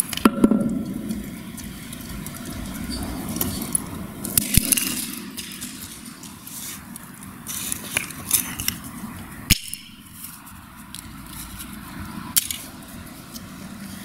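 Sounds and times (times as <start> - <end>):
sledgehammer cracks: 4.3 - 6.4.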